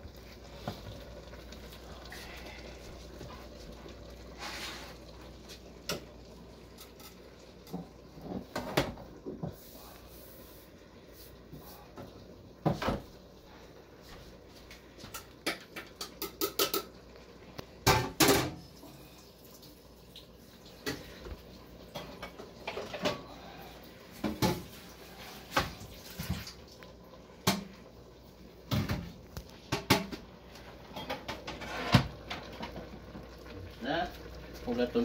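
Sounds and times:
dishes clattering at sink: 0:06.7 - 0:09.6, 0:15.0 - 0:17.0, 0:17.8 - 0:18.6, 0:20.8 - 0:23.4, 0:24.2 - 0:24.8, 0:28.7 - 0:30.3, 0:30.9 - 0:32.9.

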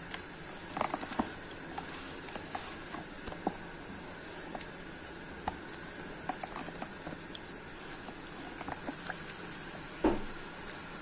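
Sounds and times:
charcoal crackling and popping: 0:00.0 - 0:11.0
gas burner hissing: 0:00.0 - 0:11.0
dull knock: 0:10.0 - 0:10.3.

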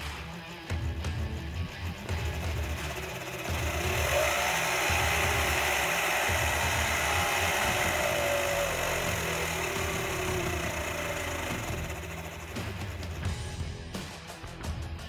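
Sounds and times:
mechanical clatter: 0:01.5 - 0:13.4
electric motor whine: 0:01.9 - 0:13.4.

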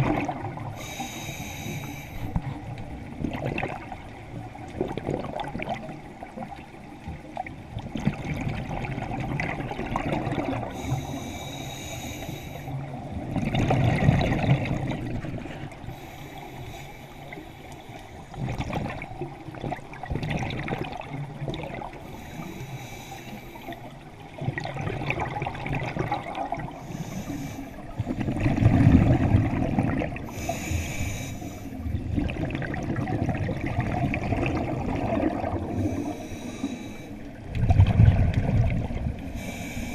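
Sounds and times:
regulator hissing inhale: 0:00.7 - 0:02.4, 0:10.7 - 0:12.9, 0:15.8 - 0:18.3, 0:22.0 - 0:23.9, 0:26.7 - 0:28.4, 0:30.2 - 0:31.9, 0:35.7 - 0:37.3, 0:39.2 - 0:39.9.

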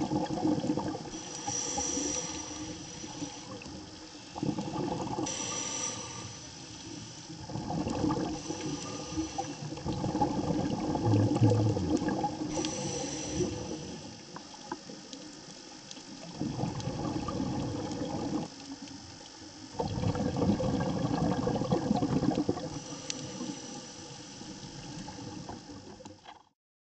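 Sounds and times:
underwater air bubbling: 0:00.0 - 0:26.5
faint clicks: 0:11.4 - 0:12.8, 0:14.1 - 0:16.9, 0:23.0 - 0:23.4.

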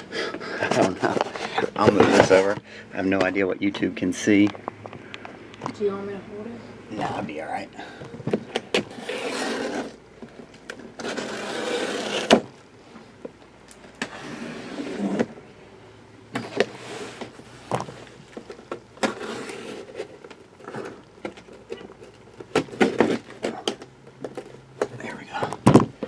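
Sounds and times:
cardboard scraping: 0:00.6 - 0:02.6, 0:08.8 - 0:10.0, 0:10.9 - 0:12.4, 0:14.1 - 0:15.3, 0:19.0 - 0:21.8, 0:22.6 - 0:23.7
packing tape tearing: 0:08.7 - 0:10.0, 0:10.9 - 0:12.4, 0:19.0 - 0:24.5.

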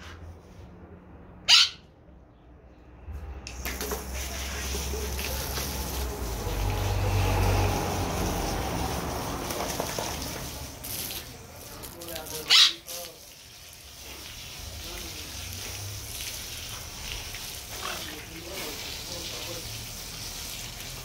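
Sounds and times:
hose spraying water: 0:03.2 - 0:21.0.

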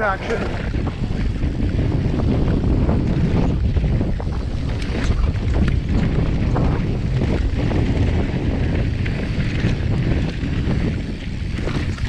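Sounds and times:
bike clicking and rattling: 0:00.0 - 0:12.0
wind rushing over microphone: 0:00.0 - 0:12.0.

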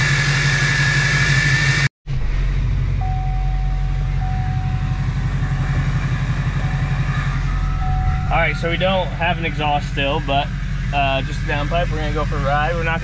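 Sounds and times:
diesel engine idling: 0:02.3 - 0:13.0
high turbo whistle: 0:03.0 - 0:11.0.

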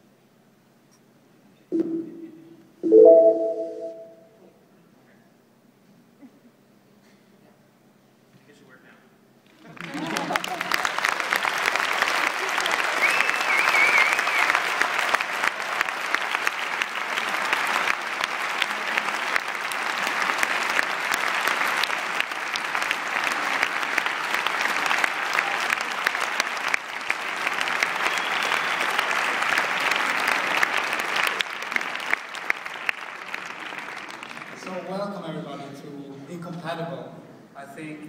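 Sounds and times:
audience applause: 0:09.5 - 0:35.1.

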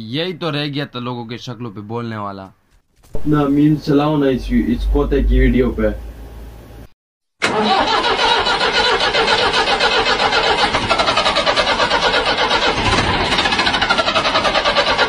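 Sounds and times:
engine-like rapid pulsing: 0:03.2 - 0:06.0, 0:07.6 - 0:15.0.

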